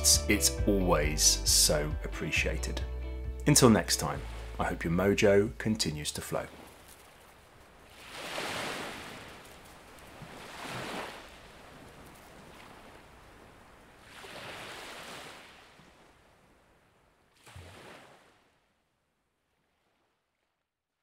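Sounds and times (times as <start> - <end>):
surf washing in: 6.1 - 16.7.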